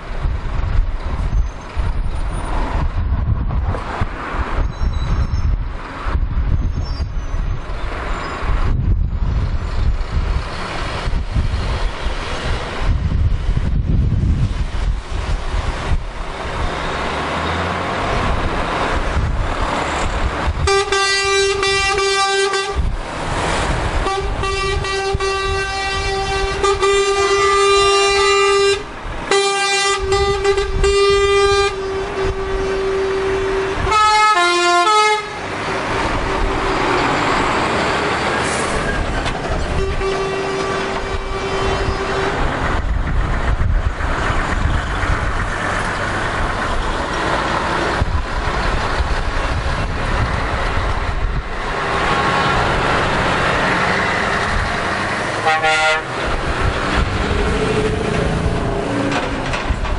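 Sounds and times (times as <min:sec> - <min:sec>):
tyre and wind noise: 0:00.0 - 0:34.4, 0:35.4 - 0:59.9
truck engines running: 0:00.0 - 0:59.9
horn of stepping notes: 0:20.6 - 0:22.9, 0:24.0 - 0:35.5, 0:39.7 - 0:42.5, 0:55.4 - 0:56.2
truck air horn blasts: 0:20.6 - 0:22.9, 0:24.0 - 0:35.5, 0:39.7 - 0:42.5, 0:55.4 - 0:56.2.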